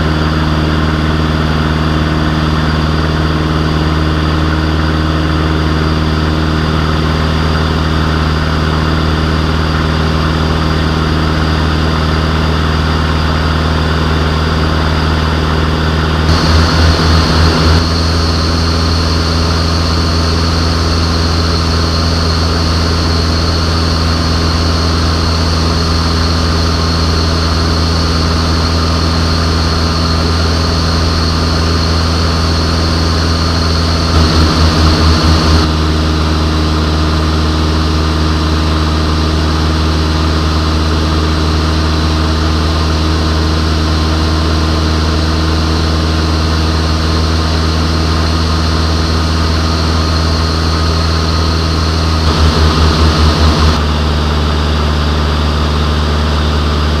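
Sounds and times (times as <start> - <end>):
aircraft engine and propeller droning: 0.0 - 57.0.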